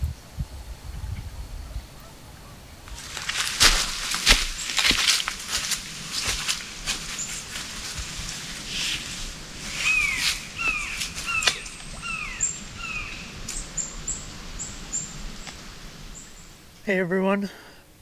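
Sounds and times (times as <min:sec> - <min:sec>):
footsteps on leaves: 0:02.9 - 0:13.6
bird calling downward notes: 0:09.8 - 0:15.2
thin high bird chirps: 0:09.8 - 0:15.2.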